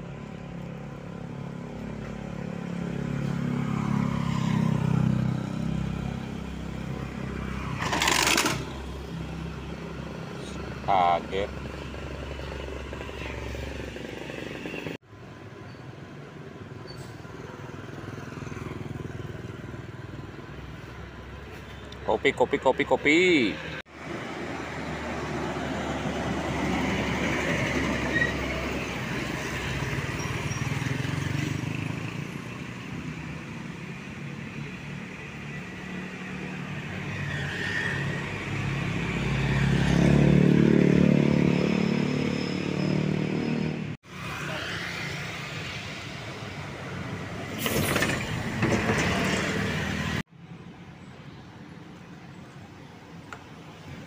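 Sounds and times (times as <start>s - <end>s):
engine passing close: 0.0s - 15.0s, 23.2s - 50.3s
cars and motorbikes passing: 0.0s - 54.0s.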